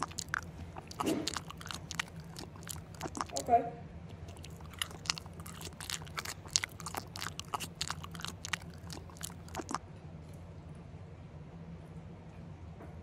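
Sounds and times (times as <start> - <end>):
chewing with wet mouth clicks: 0.0 - 3.5, 4.1 - 9.8
faint low hum: 0.0 - 13.0.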